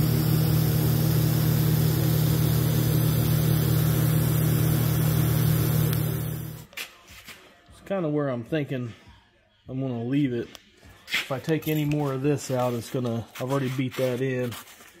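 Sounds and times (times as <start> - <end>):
machine droning: 0.0 - 6.7.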